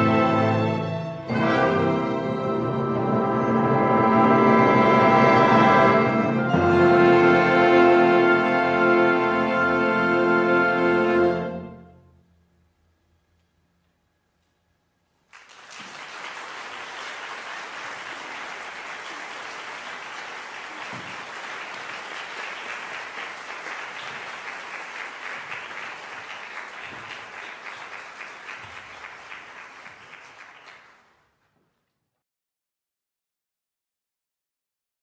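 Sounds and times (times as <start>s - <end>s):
audience applauding: 15.2s - 31.4s.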